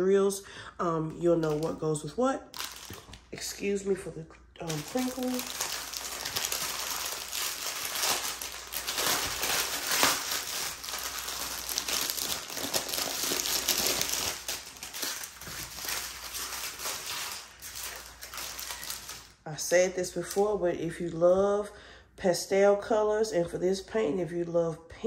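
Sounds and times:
plastic packaging crinkling: 1.3 - 1.8, 2.5 - 3.8, 4.6 - 19.4.

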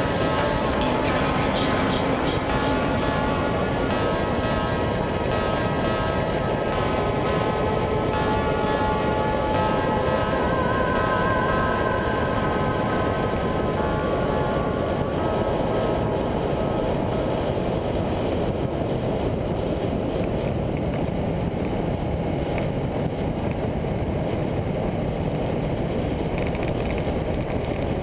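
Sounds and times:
wind and road noise: 12.8 - 28.0.

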